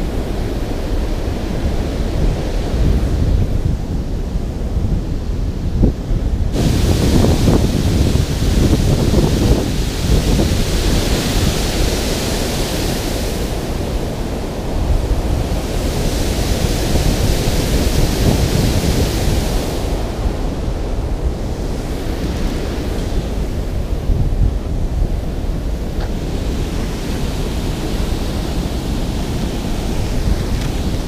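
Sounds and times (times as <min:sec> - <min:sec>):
wind buffeting microphone: 0:00.0 - 0:31.0
water rushing over spillway: 0:06.5 - 0:31.0.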